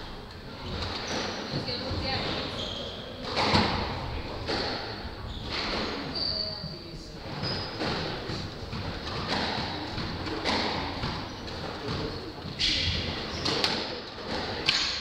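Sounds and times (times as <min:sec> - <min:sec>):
squash ball knocks and thuds: 0:03.2 - 0:06.1, 0:07.2 - 0:15.0.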